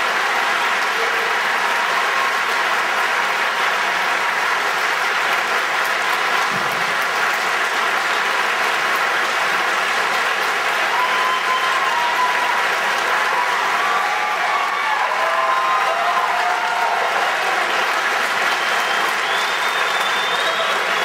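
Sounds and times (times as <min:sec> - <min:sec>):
audience applauding: 0:00.0 - 0:21.0.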